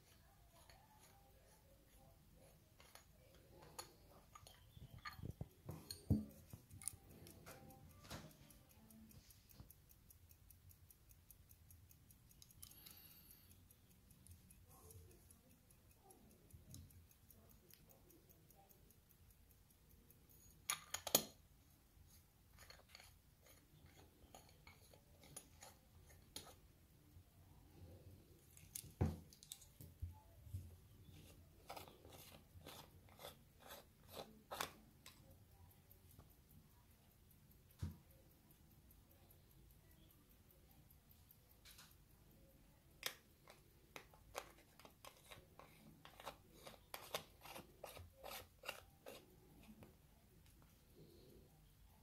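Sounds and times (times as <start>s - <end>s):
pocket watch ticking: 0.0s - 52.0s
metal watch case clicking: 20.6s - 21.4s.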